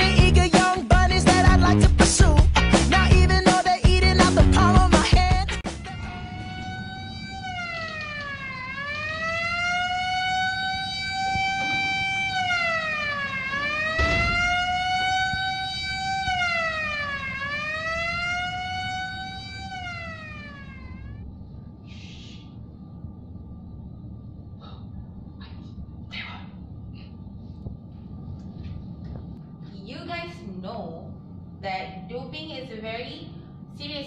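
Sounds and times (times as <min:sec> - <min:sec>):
siren wailing: 0:05.6 - 0:21.2.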